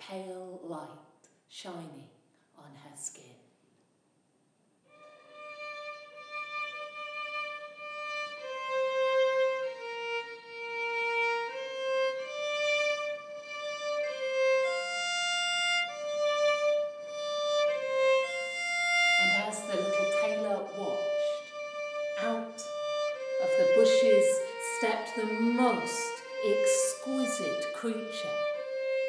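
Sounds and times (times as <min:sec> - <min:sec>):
solo violin melody: 0:04.9 - 0:29.0.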